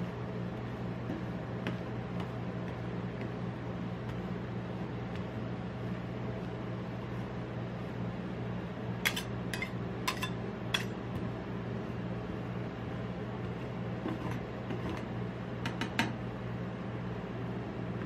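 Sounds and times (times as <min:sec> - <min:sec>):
low machine hum: 0:00.0 - 0:18.0
metal spatula scraping on steel: 0:09.0 - 0:11.0.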